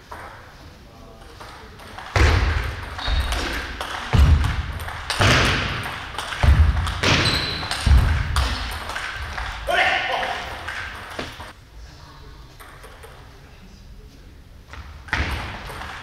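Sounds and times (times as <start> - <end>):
shoe squeaks: 3.0 - 3.6, 7.0 - 7.8.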